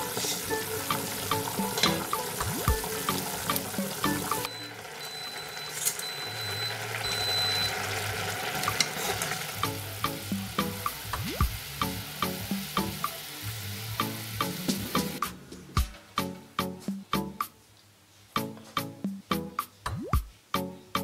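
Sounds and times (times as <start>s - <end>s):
background music with plucked notes: 0.0s - 4.8s, 8.6s - 17.5s, 18.4s - 21.0s
water boiling in saucepan: 0.0s - 15.2s.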